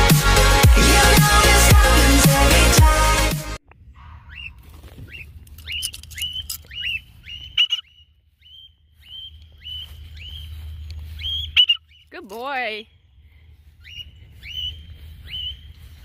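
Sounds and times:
cockatiel whistled calls: 4.3 - 10.6, 11.2 - 12.0, 13.8 - 15.7.

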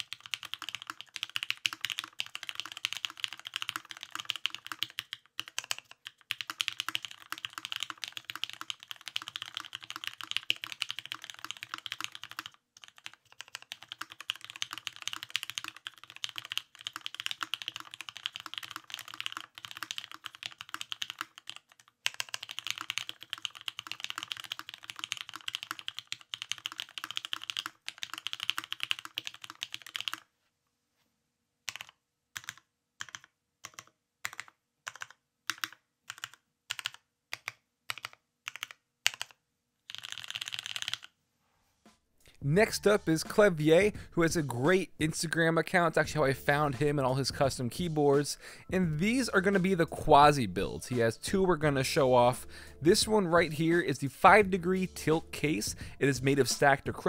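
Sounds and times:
mechanical keyboard typing: 0.0 - 30.3, 31.7 - 41.1.

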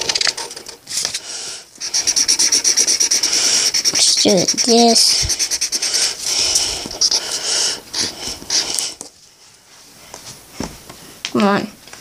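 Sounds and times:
marker squeaking on paper: 1.8 - 9.0.

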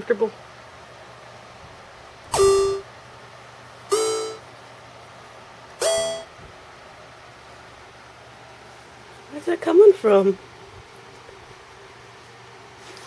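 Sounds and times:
short synthesizer notes: 2.3 - 2.9, 3.9 - 4.4, 5.8 - 6.4.

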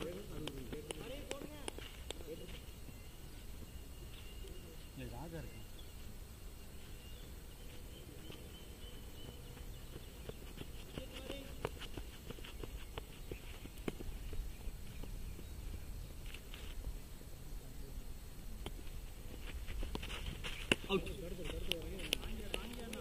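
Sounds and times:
light irregular ticks and taps: 0.0 - 2.7, 9.2 - 15.2, 18.6 - 23.0
wind rumble on microphone: 12.6 - 17.6.

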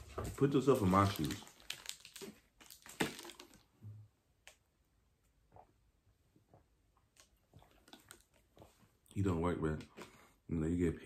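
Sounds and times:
faint drinking sounds: 5.4 - 9.2.

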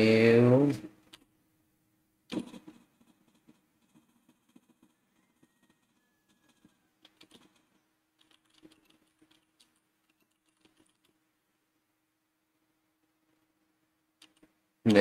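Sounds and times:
faint keyboard typing: 0.9 - 1.4, 2.3 - 11.3, 13.0 - 15.0.

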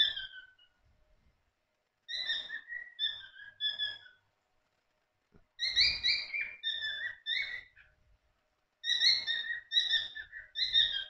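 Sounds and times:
cockatiels chirping shrilly: 0.0 - 0.8, 2.1 - 4.2, 5.6 - 7.9, 8.8 - 11.0.

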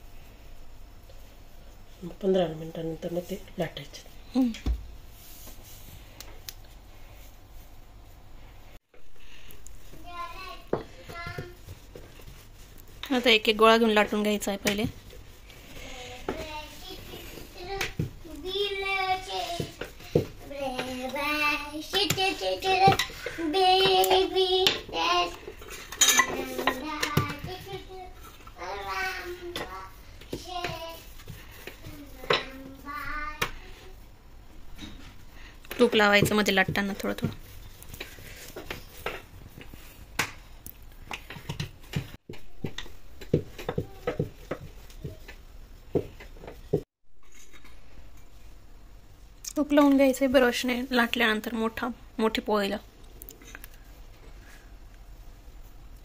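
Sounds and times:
rolling pin rolling dough: 9.3 - 46.9.

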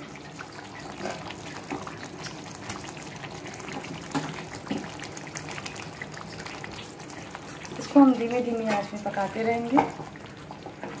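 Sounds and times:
gravy bubbling in a pan: 0.0 - 11.0
food plopping into a pan: 1.0 - 7.8.

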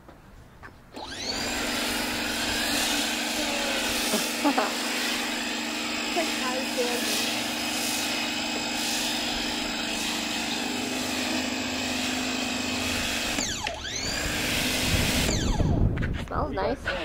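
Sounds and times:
pressure washer running: 1.0 - 15.8.

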